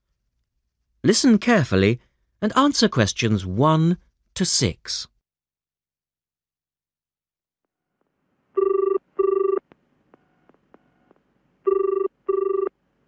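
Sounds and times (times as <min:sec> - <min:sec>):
telephone ringing: 0:08.6 - 0:09.6, 0:11.7 - 0:12.8.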